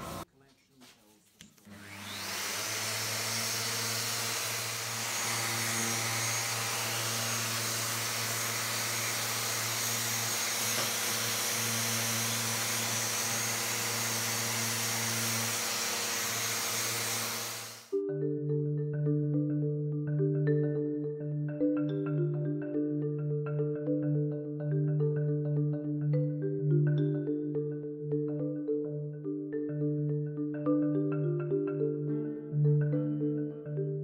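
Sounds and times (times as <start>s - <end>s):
electric sander on wood: 1.6s - 18.0s.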